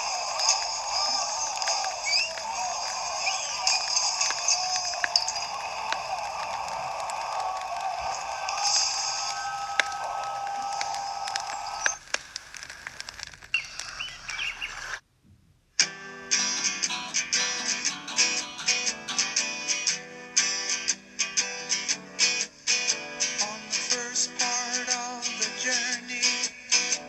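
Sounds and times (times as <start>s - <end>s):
faint chirps: 0.0s - 5.8s, 8.6s - 12.1s, 13.5s - 15.0s
clicks: 0.3s - 15.0s
guitar music with picked notes: 15.8s - 24.4s.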